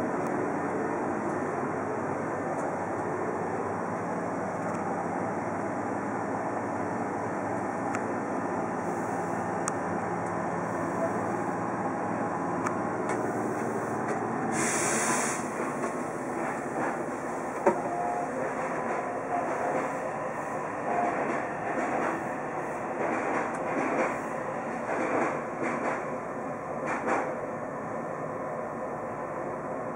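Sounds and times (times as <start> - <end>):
train running noise: 0.0 - 29.9
short hiss of air: 14.5 - 15.6.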